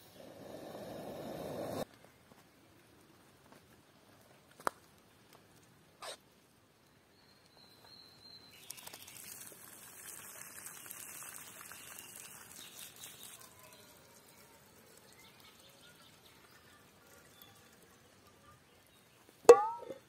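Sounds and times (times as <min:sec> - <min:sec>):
rice and water poured into colander: 0:08.6 - 0:18.9.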